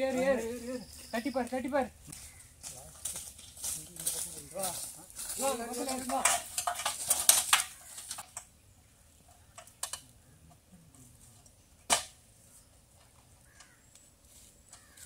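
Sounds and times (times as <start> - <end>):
metal ladder clattering: 5.4 - 8.2.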